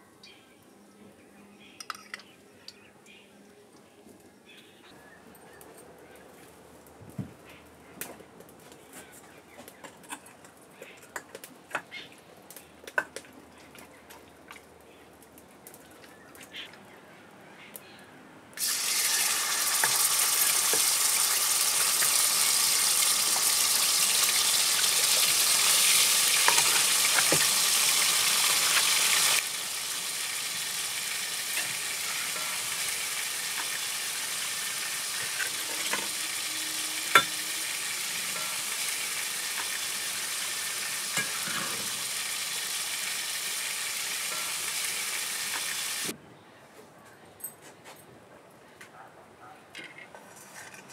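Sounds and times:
chicken sizzling in a pan: 18.6 - 46.1.

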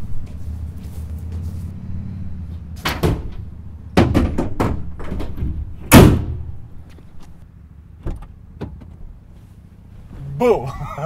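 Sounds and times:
tailgate slamming shut: 2.8 - 6.7.

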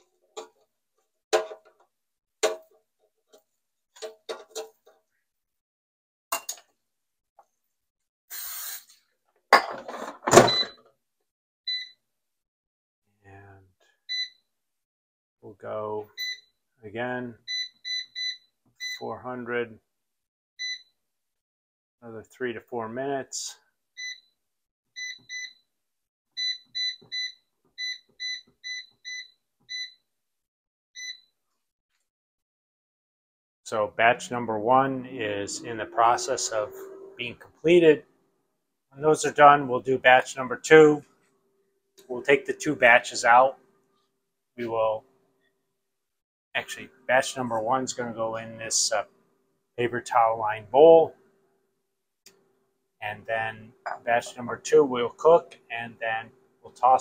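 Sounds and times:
cooking oil spray hiss: 8.3 - 9.0
air fryer beep: 10.4 - 10.8, 11.7 - 12.0, 14.1 - 14.4, 20.6 - 20.9, 24.0 - 24.3, 25.0 - 25.6, 26.4 - 30.0, 31.0 - 31.3.

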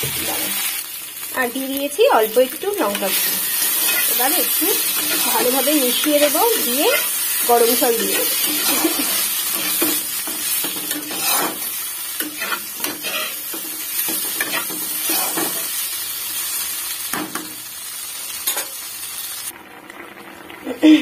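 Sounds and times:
vegetables sizzling in hot oil: 0.0 - 21.0
metal spatula scraping pan: 2.8 - 15.7.

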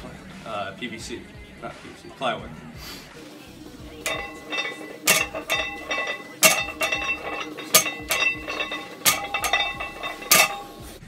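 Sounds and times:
barbell plates clanking on platform: 4.0 - 11.0.

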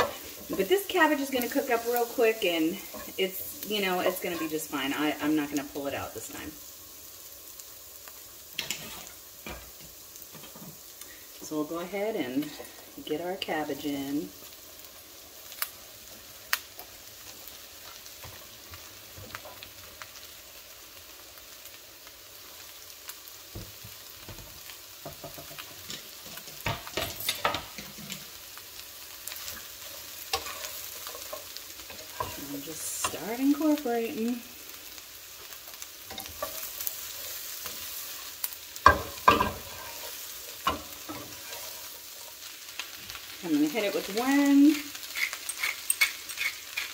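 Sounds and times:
wooden spoon scraping a pan: 0.0 - 5.2, 8.6 - 10.9, 25.0 - 28.4, 29.3 - 34.3, 36.1 - 46.9
cabbage sizzling in a skillet: 0.0 - 46.9.

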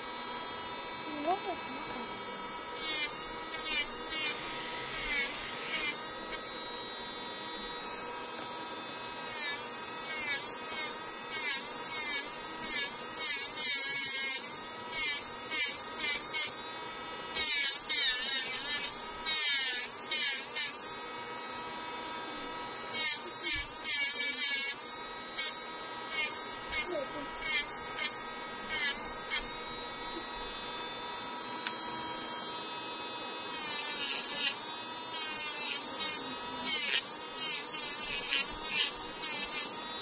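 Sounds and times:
electric nail drill whining: 0.0 - 40.0
bit grinding on nail: 2.8 - 6.4, 17.4 - 20.8, 22.9 - 29.6, 33.5 - 39.9.

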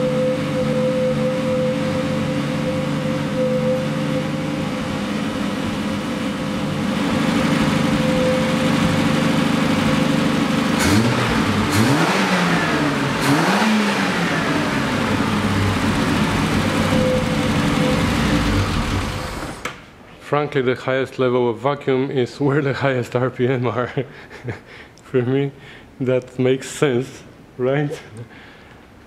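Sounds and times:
car engine revving: 0.0 - 19.7.

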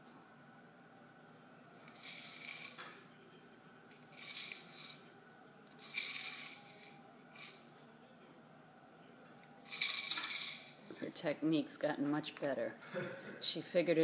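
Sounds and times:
kibble rattling in plastic ball: 1.9 - 2.8, 4.2 - 5.0, 5.7 - 7.6, 9.6 - 10.8.

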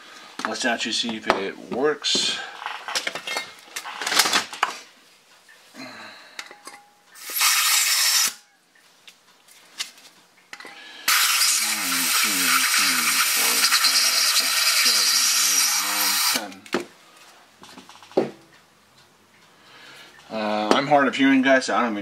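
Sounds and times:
gas hissing: 7.2 - 8.4, 11.0 - 16.6.

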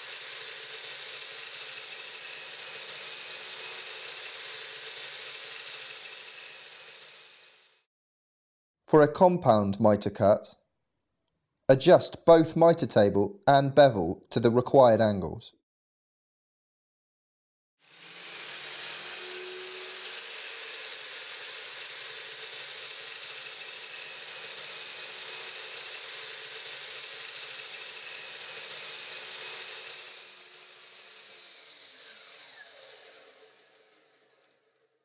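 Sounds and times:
mitre saw running: 0.0 - 7.9, 17.8 - 35.0
saw blade winding down whine: 0.0 - 7.9, 17.8 - 35.0.

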